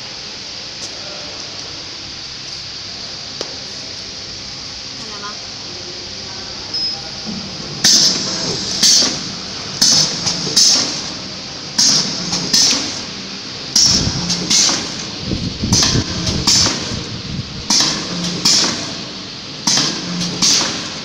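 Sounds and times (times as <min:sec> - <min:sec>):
packing machine running: 0:06.4 - 0:21.0.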